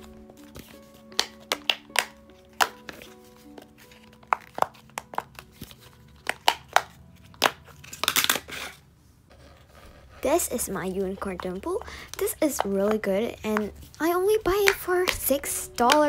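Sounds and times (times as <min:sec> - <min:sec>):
faint background music: 0:00.0 - 0:16.0.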